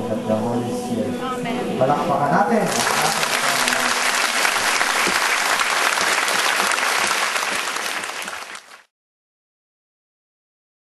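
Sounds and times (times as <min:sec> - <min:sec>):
large crowd applauding: 0:02.7 - 0:08.9.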